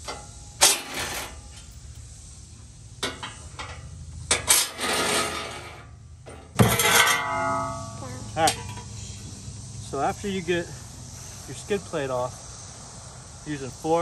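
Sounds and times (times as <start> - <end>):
metallic clanks of hand tools: 3.0 - 7.8.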